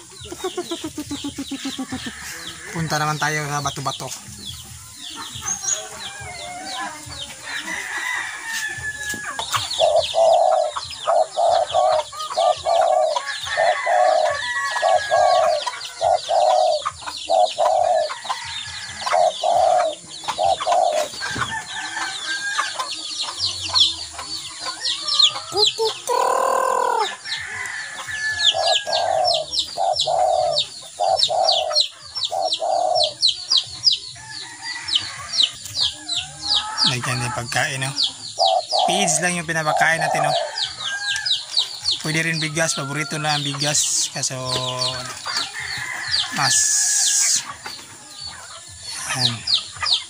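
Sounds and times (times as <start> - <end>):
chickens clucking: 0.0 - 50.0
chicken pitched call: 25.2 - 27.6.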